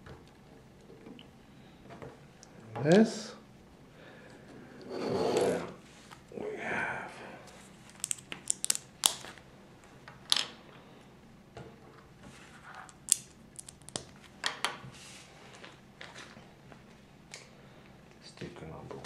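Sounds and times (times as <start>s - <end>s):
plastic bricks clicking together: 8.0s - 9.2s, 12.9s - 14.6s.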